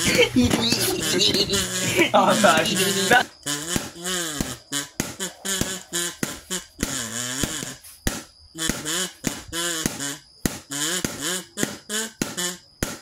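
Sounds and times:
person singing wavering phrases: 0.3 - 3.2.

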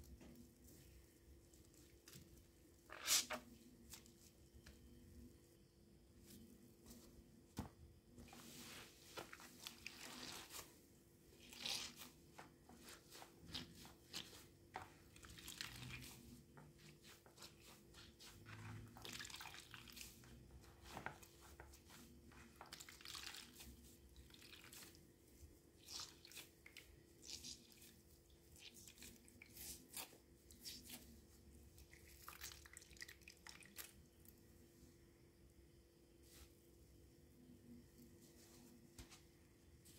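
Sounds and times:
wet sponge squishing: 2.8 - 4.3, 8.2 - 34.0.

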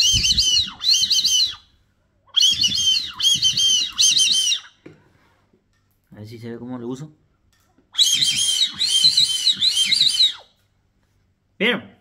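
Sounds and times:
warbling duck whistle calls: 0.0 - 1.7, 2.3 - 4.8, 8.0 - 10.6.

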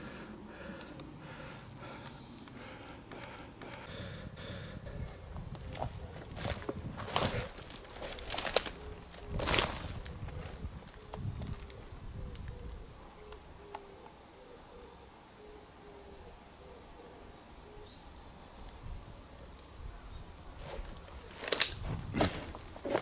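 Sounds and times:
high insect trill: 0.0 - 23.0
footsteps on dry leaves: 5.6 - 11.7, 20.6 - 23.0.

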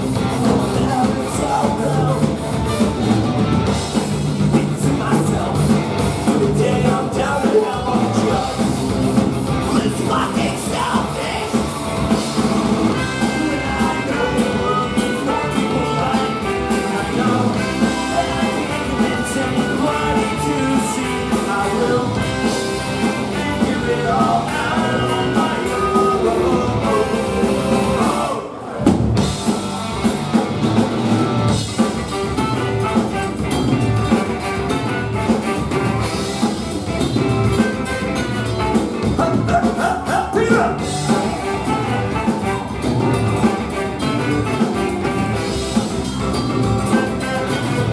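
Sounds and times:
live ska band playing: 0.0 - 47.9
sung vocals: 0.2 - 2.4, 4.5 - 9.0, 9.6 - 11.7, 13.0 - 28.8, 39.0 - 42.4.

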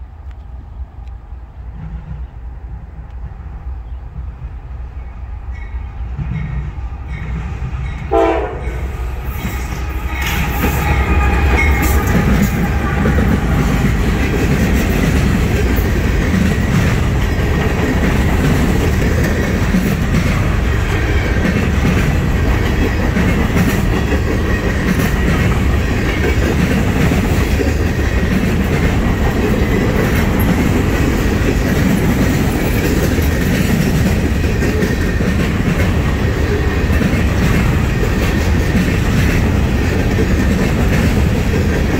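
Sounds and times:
diesel locomotives passing: 0.0 - 41.9
train horn: 8.0 - 13.9
freight cars rumbling and rattling: 8.8 - 41.9.

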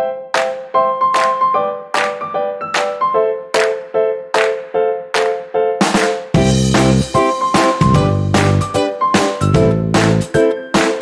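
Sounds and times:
background music with sharp beat: 0.4 - 11.0.

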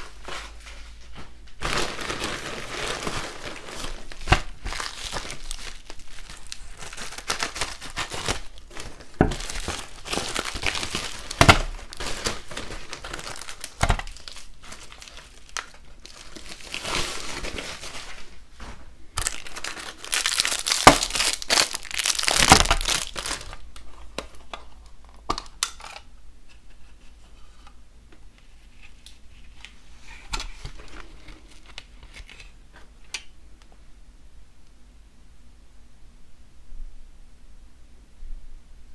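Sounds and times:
plastic wrap tearing: 0.0 - 18.4, 19.2 - 24.5
plastic packaging crinkling: 0.0 - 26.1, 28.8 - 32.6
scissors cutting plastic bag: 1.6 - 17.8, 19.2 - 23.6.

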